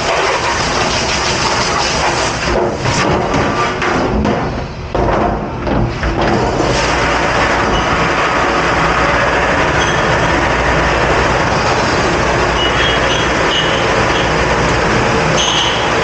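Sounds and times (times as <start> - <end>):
dish machine water spray and pump: 0.0 - 16.0.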